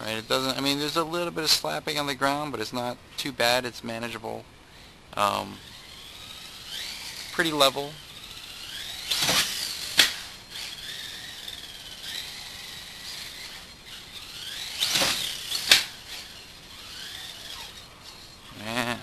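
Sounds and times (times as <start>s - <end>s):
electric motor whining: 4.7s - 19.0s
toy car landing clacks: 8.1s - 18.3s.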